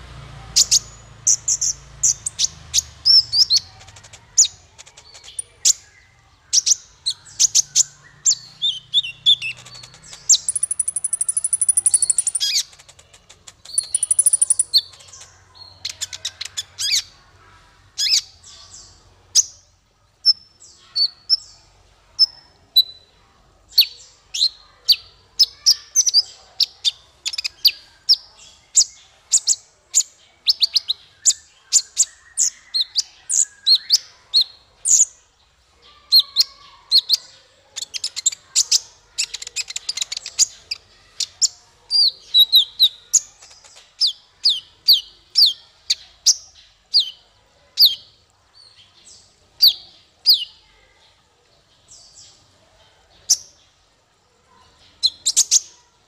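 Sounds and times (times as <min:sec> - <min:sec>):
bird chirping: 0:00.0 - 0:51.0, 0:54.5 - 0:56.0
high buzzing bird trills: 0:08.9 - 0:12.6, 0:13.8 - 0:14.9.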